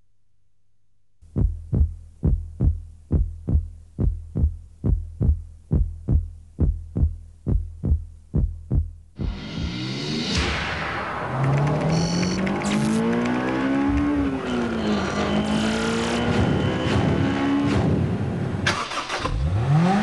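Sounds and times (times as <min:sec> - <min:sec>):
heartbeat thumps: 0:01.2 - 0:09.7.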